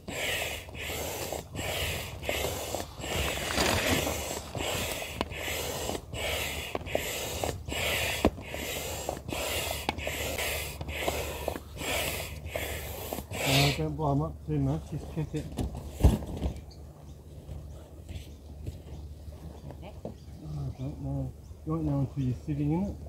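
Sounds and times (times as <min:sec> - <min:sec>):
air pump strokes hissing: 0:00.0 - 0:14.0.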